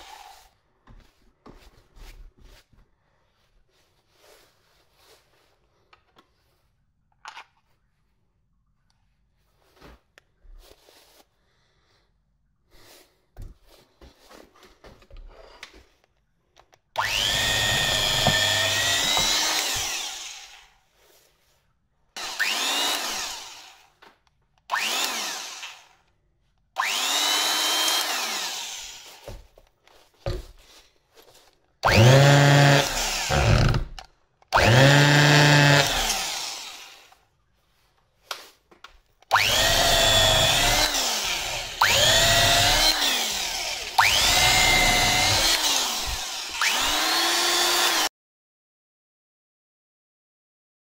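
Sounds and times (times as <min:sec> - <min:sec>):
electric drill motor whining: 0:17.0 - 0:20.7, 0:22.2 - 0:24.0, 0:24.7 - 0:26.0, 0:26.8 - 0:29.4, 0:31.8 - 0:37.2, 0:39.3 - 0:48.1.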